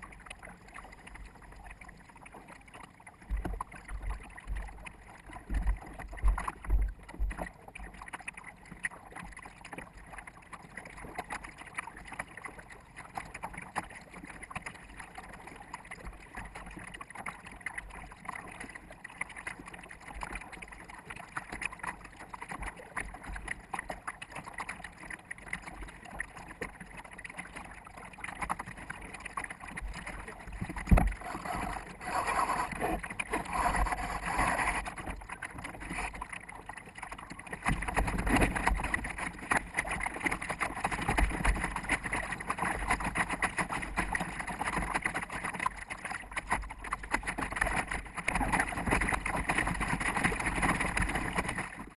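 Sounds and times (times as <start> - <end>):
water rushing against boat: 0.0 - 52.0.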